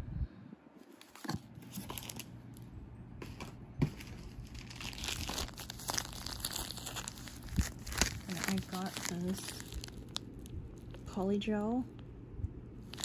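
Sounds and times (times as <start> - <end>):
plastic packaging crinkling: 0.9 - 2.6, 3.2 - 11.2.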